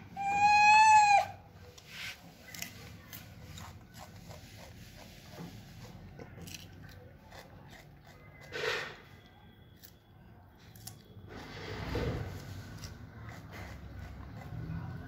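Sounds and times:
monkey chewing crunches: 2.4s - 8.5s.

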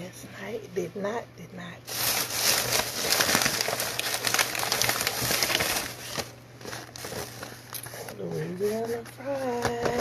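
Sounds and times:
paper bag rustling and crinkling: 1.9s - 9.7s.

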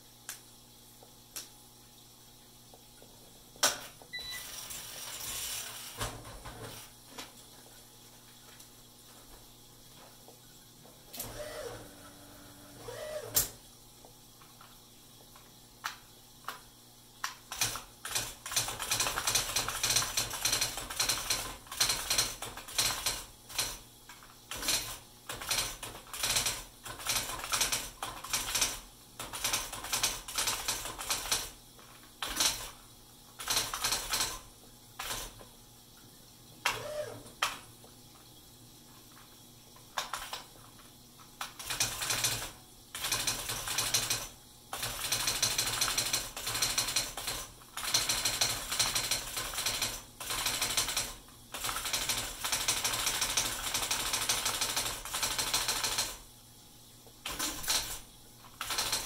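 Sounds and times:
typewriter print mechanism clattering: 17.5s - 23.8s, 24.5s - 31.6s, 32.2s - 32.8s, 33.4s - 34.4s, 35.0s - 35.4s, 40.0s - 40.5s, 41.4s - 56.2s, 57.3s - 59.0s.

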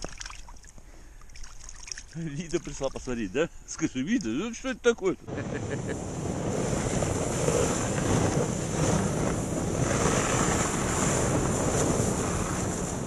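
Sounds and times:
sled hissing over snow: 5.3s - 13.0s
snowmobile engine running: 5.3s - 13.0s
wind buffeting microphone: 5.3s - 13.0s.

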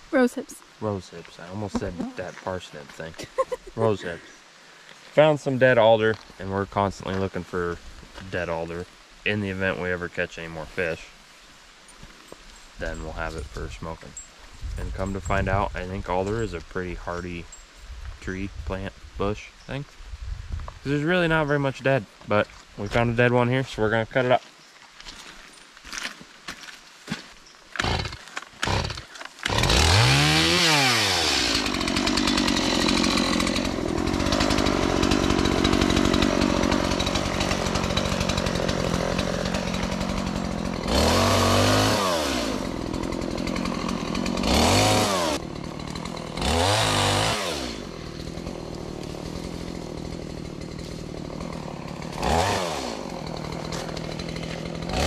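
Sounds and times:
chainsaw revving and cutting: 1.4s - 4.3s, 27.8s - 55.0s.

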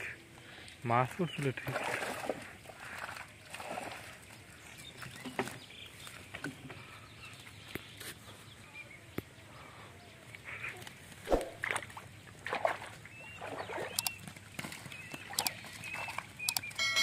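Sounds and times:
light splashes: 1.0s - 5.6s, 11.2s - 16.7s.

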